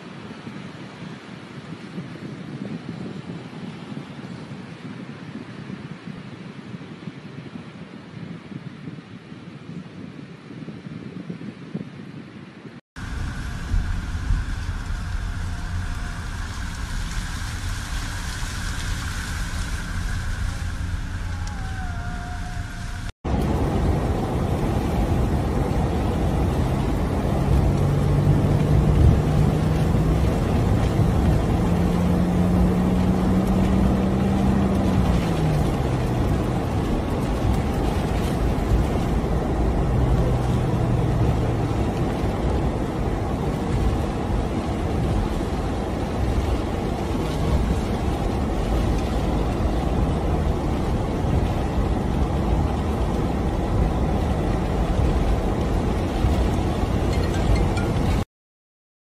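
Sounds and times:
car engine: 0:13.0 - 0:58.2
water spray rushing: 0:13.0 - 0:58.2.

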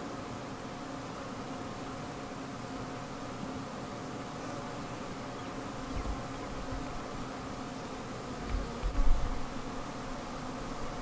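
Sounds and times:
bees buzzing: 0:00.0 - 0:11.0
low bumps on microphone: 0:08.4 - 0:09.4.

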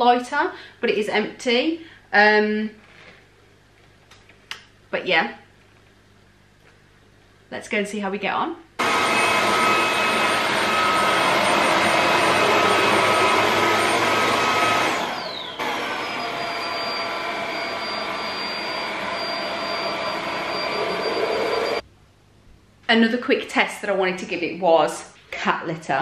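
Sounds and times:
vacuum cleaner motor whine: 0:08.8 - 0:21.8.

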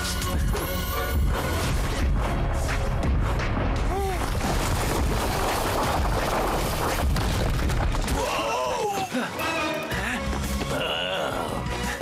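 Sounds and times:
rumbling and crashing impacts: 0:01.6 - 0:08.3.

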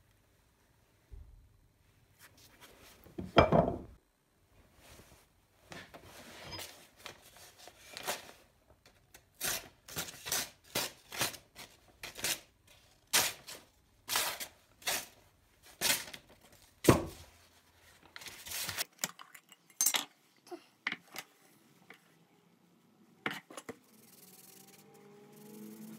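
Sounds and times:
paper rustling and crinkling: 0:17.4 - 0:18.9.

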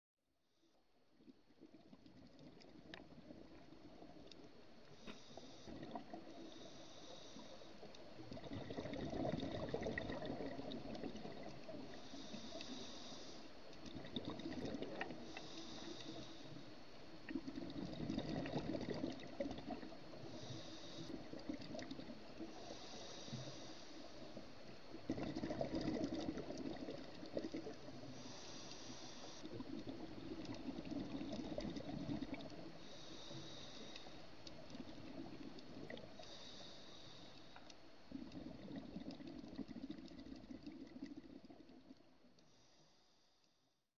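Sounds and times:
exhaled bubbles underwater: 0:01.1 - 0:04.7, 0:05.4 - 0:12.8, 0:13.8 - 0:28.5, 0:29.2 - 0:36.4, 0:38.0 - 0:42.3
regulator inhale hiss: 0:04.5 - 0:08.1, 0:11.6 - 0:13.8, 0:14.9 - 0:17.1, 0:19.3 - 0:25.0, 0:27.1 - 0:31.4, 0:32.5 - 0:37.9, 0:42.4 - 0:43.7.

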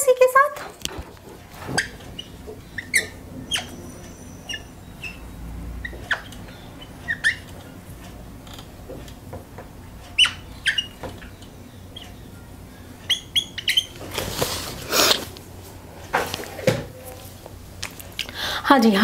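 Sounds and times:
whiteboard marker squeaking: 0:01.7 - 0:05.2, 0:05.8 - 0:07.6, 0:10.2 - 0:11.4.

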